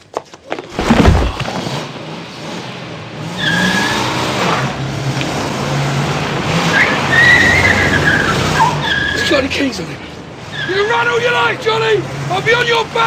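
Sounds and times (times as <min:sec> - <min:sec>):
car engine revving: 0:00.8 - 0:08.8
tyres squealing: 0:06.6 - 0:09.8, 0:10.4 - 0:12.5.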